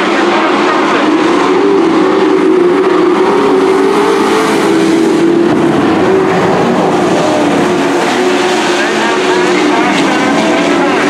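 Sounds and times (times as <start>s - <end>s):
race truck engines running hard: 0.0s - 11.0s.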